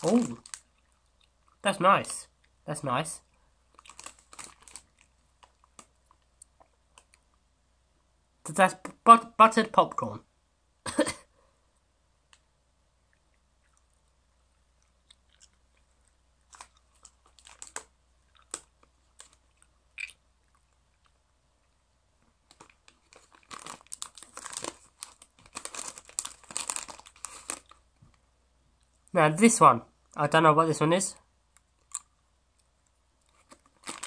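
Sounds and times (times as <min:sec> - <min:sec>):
jelly beans rattling in plastic bag: 0:00.0 - 0:00.7, 0:03.8 - 0:05.8, 0:16.5 - 0:19.4, 0:22.5 - 0:27.8, 0:33.4 - 0:34.0
small clicks and crunches: 0:03.7 - 0:07.3, 0:14.8 - 0:21.2, 0:22.4 - 0:28.2, 0:31.6 - 0:34.0.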